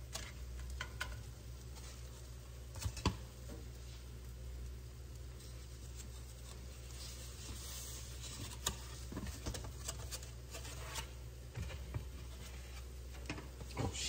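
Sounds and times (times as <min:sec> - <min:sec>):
eggs and bacon sizzling: 0:00.0 - 0:09.5.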